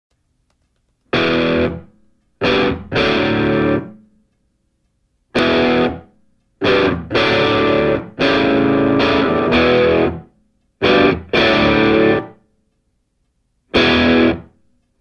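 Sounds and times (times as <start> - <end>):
distorted electric guitar chords: 1.1 - 4.1, 5.4 - 12.4, 13.7 - 14.6.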